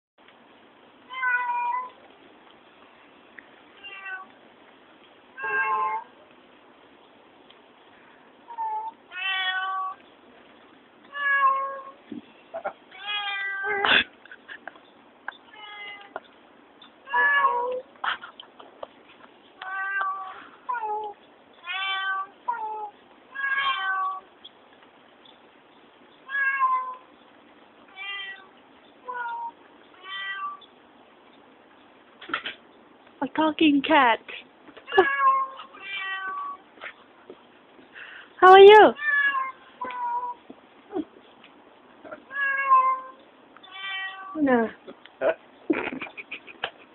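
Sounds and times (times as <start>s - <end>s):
cats meowing: 1.1s - 2.0s, 3.8s - 4.4s, 5.4s - 6.2s, 8.4s - 10.0s, 11.1s - 13.9s, 15.4s - 16.3s, 17.0s - 18.0s, 19.6s - 24.4s, 26.2s - 27.1s, 27.9s - 30.7s, 34.8s - 37.1s, 39.0s - 41.2s, 42.0s - 44.4s.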